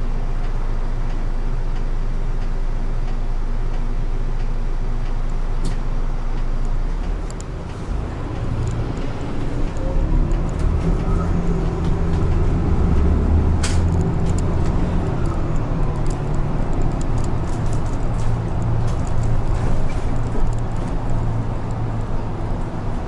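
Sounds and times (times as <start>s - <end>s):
bus engine and road rumble: 0.0s - 23.0s
sharp click: 13.6s - 14.1s.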